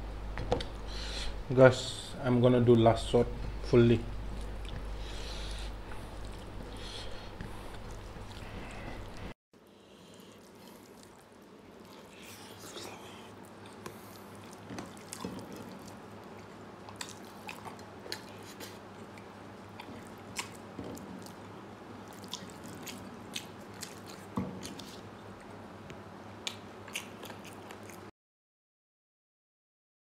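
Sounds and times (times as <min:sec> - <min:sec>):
chewing and wet mouth smacks: 0:10.4 - 0:25.6, 0:26.4 - 0:28.1.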